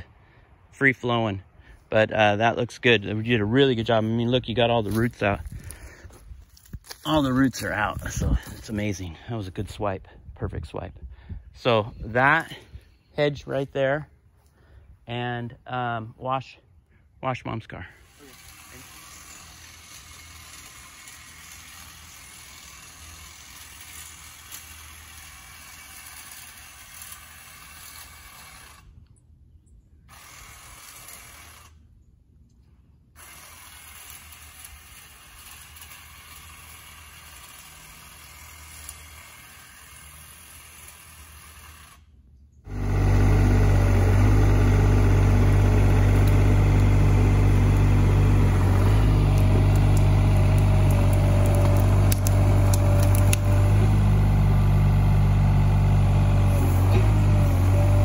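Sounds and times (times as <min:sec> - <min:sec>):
hedge trimmer buzzing: 0:17.9 - 0:29.0, 0:30.1 - 0:31.9, 0:33.2 - 0:58.0
excavator diesel engine running: 0:42.7 - 0:58.0.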